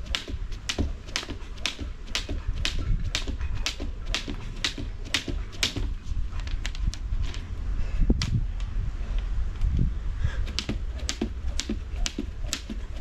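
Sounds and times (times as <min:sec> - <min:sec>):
jumps landing: 0:00.0 - 0:06.0
skipping rope slapping mat: 0:00.0 - 0:06.0, 0:10.5 - 0:13.0.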